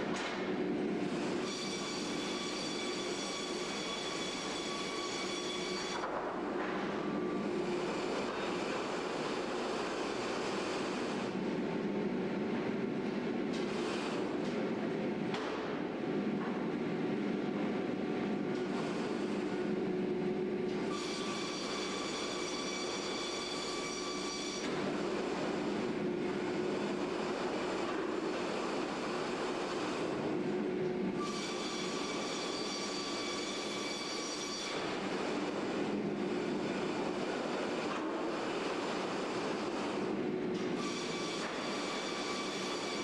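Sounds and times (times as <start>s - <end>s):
sawmill saw and conveyors din: 1.0s - 6.1s, 6.7s - 11.4s, 20.7s - 30.4s, 31.2s - 43.0s
circular saw whine: 1.3s - 6.1s, 20.9s - 24.7s, 40.8s - 43.0s
saw cutting log: 40.8s - 43.0s.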